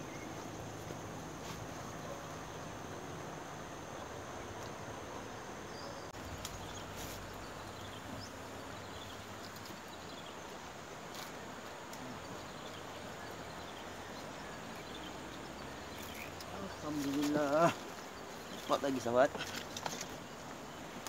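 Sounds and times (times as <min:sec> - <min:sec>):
outdoor background hiss: 0:00.0 - 0:21.0
short insect chirps: 0:05.7 - 0:20.8.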